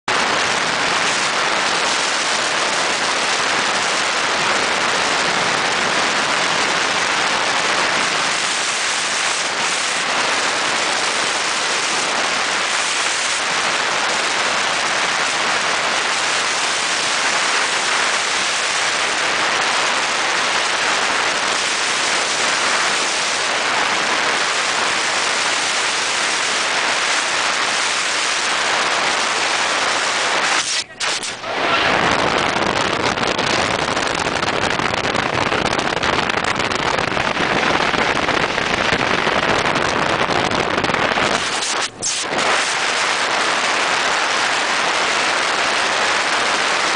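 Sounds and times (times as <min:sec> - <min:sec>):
speedboat rushing across water: 0:00.1 - 0:46.9
water spray hissing: 0:15.0 - 0:31.5, 0:41.2 - 0:45.0.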